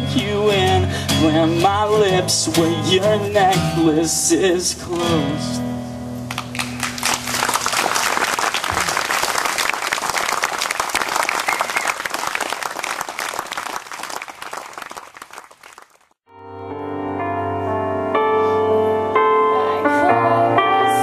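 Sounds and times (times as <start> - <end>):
audience applauding: 6.3 - 16.2.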